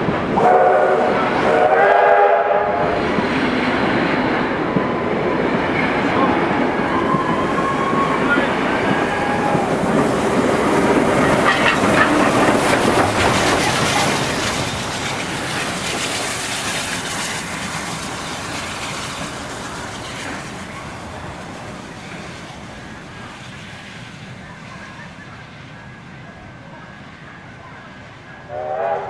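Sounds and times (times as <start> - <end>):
train passing at speed: 0.0 - 29.0
rail clatter: 2.6 - 24.4.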